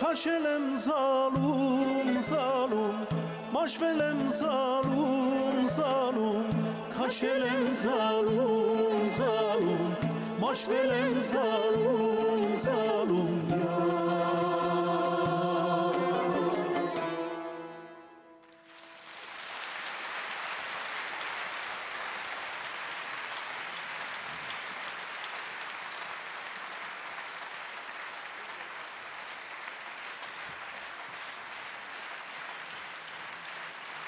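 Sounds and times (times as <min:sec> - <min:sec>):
music: 0:00.0 - 0:19.2
audience applauding: 0:18.4 - 0:34.0.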